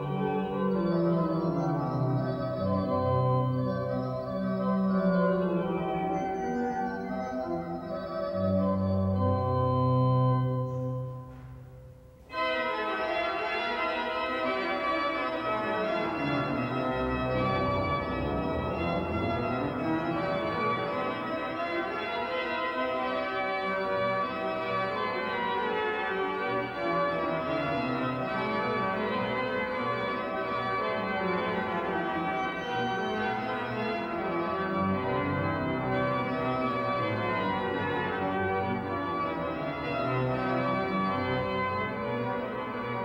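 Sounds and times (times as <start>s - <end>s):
organ chords: 0.0s - 43.0s.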